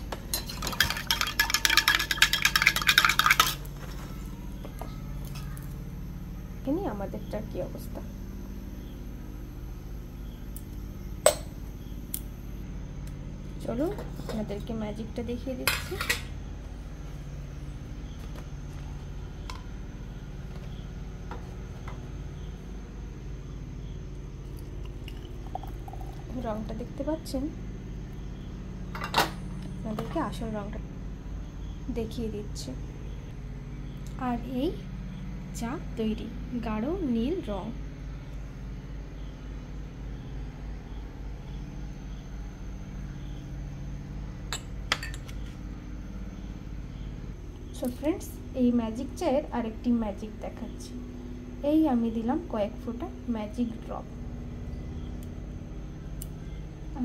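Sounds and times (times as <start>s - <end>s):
gas burner humming: 0.0s - 57.0s
glass tumbler clinking: 0.3s - 4.0s, 24.9s - 26.3s.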